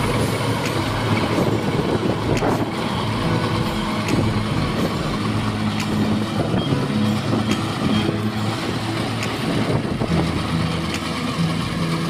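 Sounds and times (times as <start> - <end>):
combine harvester running: 0.0 - 12.0
scattered clicks: 0.5 - 1.6, 2.2 - 3.2, 4.0 - 6.8, 7.4 - 10.1, 10.8 - 11.6.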